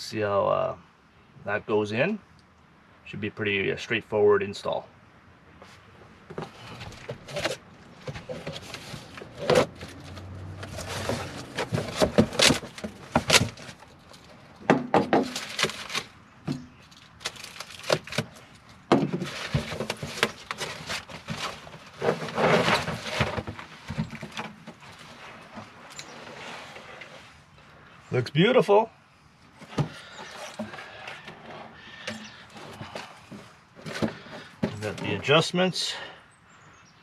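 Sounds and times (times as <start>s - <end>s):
cardboard rustling and scraping: 5.6s - 14.4s, 15.0s - 27.5s, 29.5s - 35.3s.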